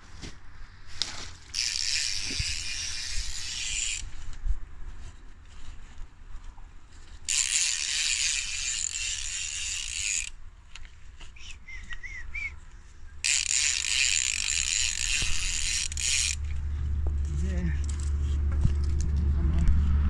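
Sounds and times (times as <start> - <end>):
fishing reel drag clicking: 1.5 - 4.1, 7.3 - 10.4, 13.2 - 16.6.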